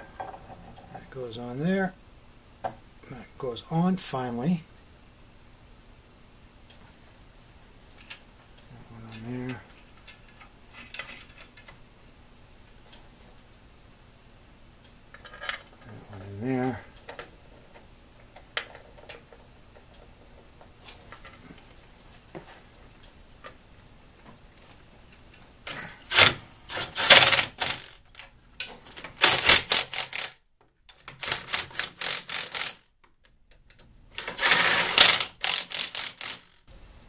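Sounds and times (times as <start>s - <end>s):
cordless driver rattling: 34.2s - 36.6s.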